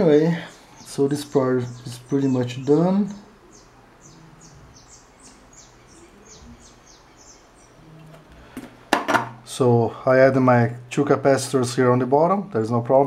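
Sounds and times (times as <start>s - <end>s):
small bird chirping faintly: 0.0s - 8.3s.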